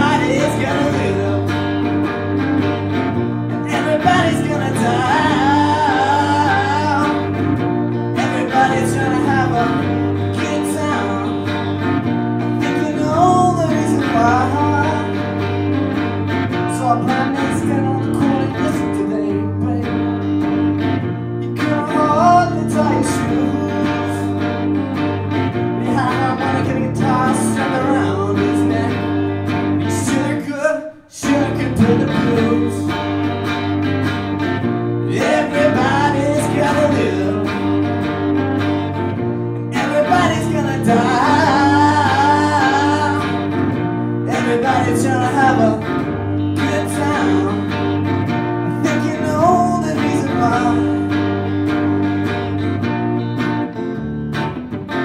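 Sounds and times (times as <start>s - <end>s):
man singing into a microphone: 0.0s - 1.9s, 3.5s - 15.5s, 16.6s - 20.2s, 21.4s - 24.9s, 25.8s - 33.1s, 35.0s - 37.8s, 39.6s - 43.6s, 44.2s - 48.0s, 48.7s - 51.4s
electric guitar chords: 0.0s - 55.0s.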